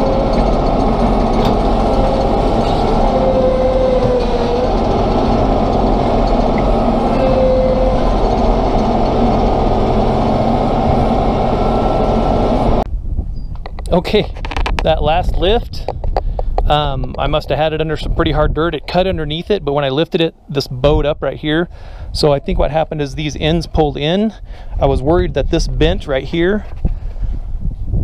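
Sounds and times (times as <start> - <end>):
thin whine: 0.0 - 12.9
tractor engine running under load: 0.0 - 12.9.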